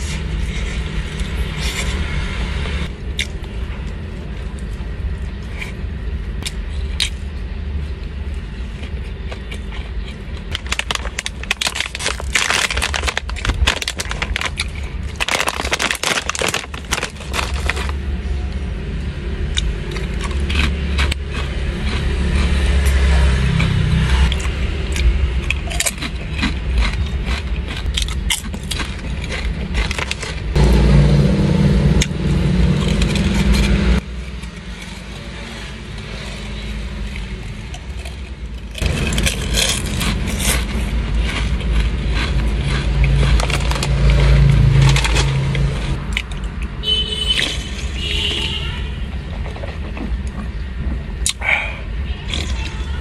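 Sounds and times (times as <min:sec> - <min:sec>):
low car hum: 0:00.0 - 0:48.2
plastic snack bag crackling: 0:10.4 - 0:18.0, 0:28.4 - 0:30.5
chewing: 0:19.5 - 0:30.5, 0:37.1 - 0:45.2
loud low drone: 0:29.8 - 0:37.5, 0:38.7 - 0:46.1.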